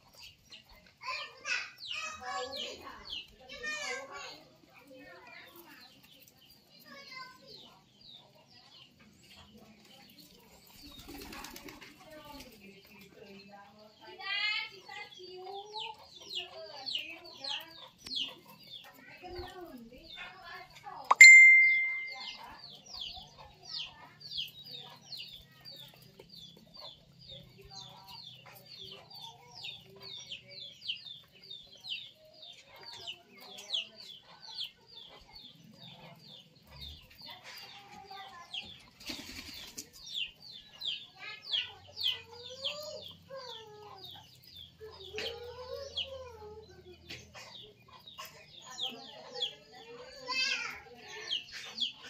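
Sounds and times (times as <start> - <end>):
pigeons pecking on concrete: 0.0 - 21.1, 21.7 - 52.0
birds chirping rapidly: 0.0 - 52.0
wings flapping: 10.7 - 12.6, 39.0 - 40.0.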